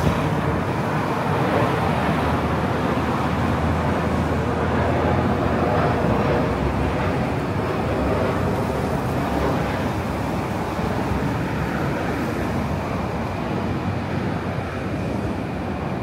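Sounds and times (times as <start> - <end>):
traffic noise: 0.0 - 16.0.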